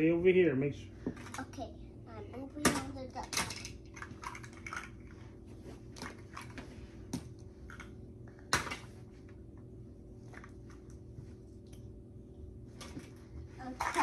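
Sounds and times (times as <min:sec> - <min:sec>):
faint room hum: 0:00.0 - 0:14.0
plastic toys clicking and knocking: 0:02.6 - 0:05.0.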